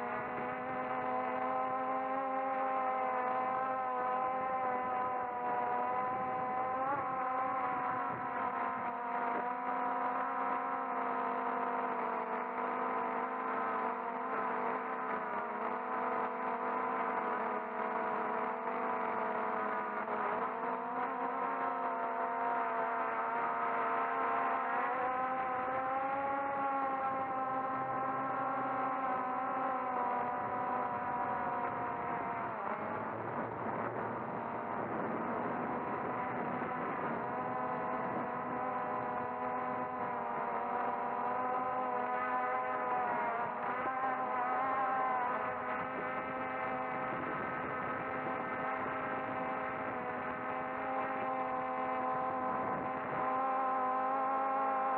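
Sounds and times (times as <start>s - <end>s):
drone motors whining: 0.0s - 54.9s.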